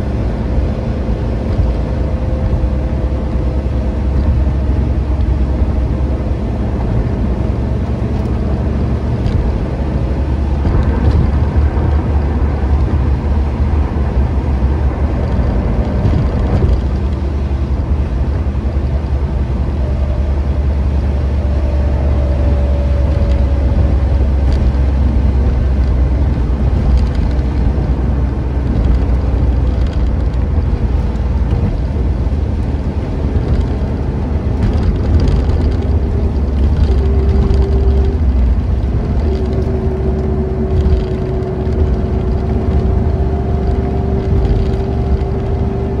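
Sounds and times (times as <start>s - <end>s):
car engine and road noise drone: 0.0s - 46.0s.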